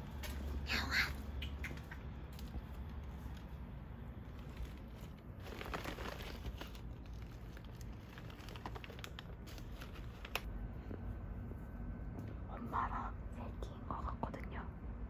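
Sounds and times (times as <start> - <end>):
low steady rumble: 0.0 - 15.0
plastic bag crinkling: 2.3 - 10.5.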